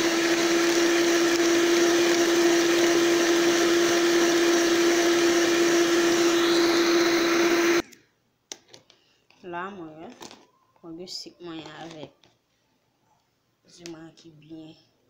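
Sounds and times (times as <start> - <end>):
electric hand mixer whining: 0.0 - 7.8.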